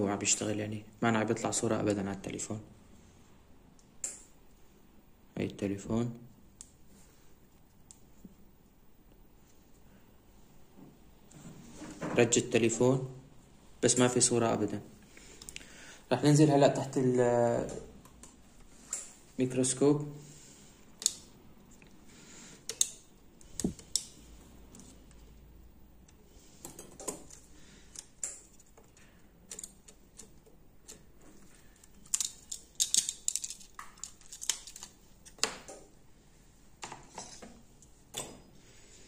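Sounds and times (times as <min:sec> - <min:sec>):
tweezers clicking on phone parts: 0:22.6 - 0:23.0.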